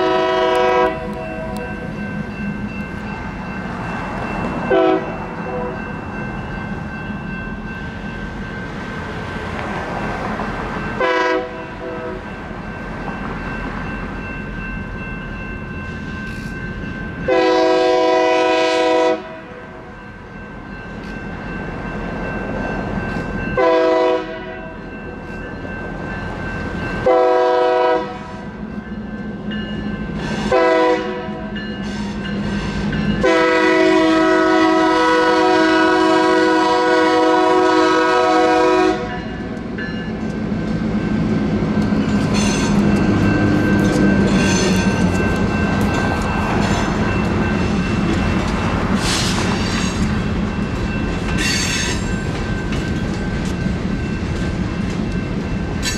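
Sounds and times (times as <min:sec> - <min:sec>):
locomotive air horn blasts: 0:00.0 - 0:01.7, 0:04.7 - 0:05.8, 0:11.0 - 0:12.2, 0:17.3 - 0:19.6, 0:23.6 - 0:24.7, 0:27.0 - 0:28.4, 0:30.5 - 0:31.5, 0:33.2 - 0:39.4
crossing bells ringing: 0:00.0 - 0:55.9
locomotive rumbling past: 0:00.0 - 0:55.9
train wheels clattering: 0:39.4 - 0:55.9.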